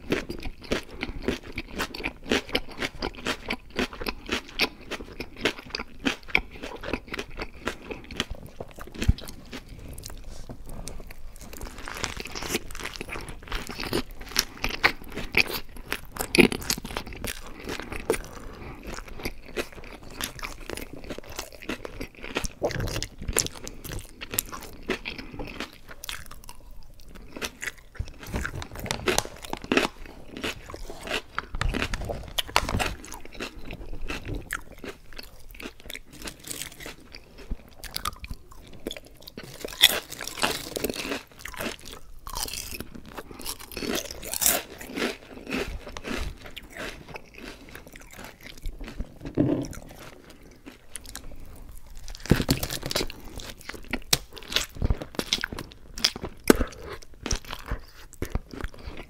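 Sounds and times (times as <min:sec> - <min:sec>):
chewing crunchy potato chips: 0:00.0 - 0:59.0.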